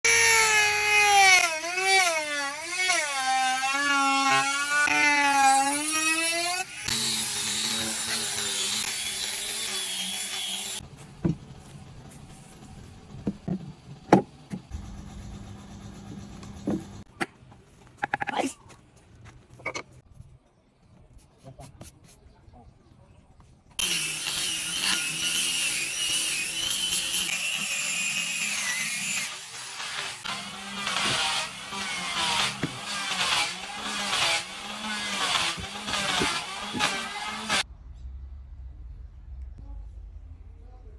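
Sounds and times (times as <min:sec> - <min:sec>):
angle grinder sanding wood: 0:00.1 - 0:10.8, 0:23.8 - 0:37.6
router cutting wood: 0:00.1 - 0:10.8, 0:23.8 - 0:37.6.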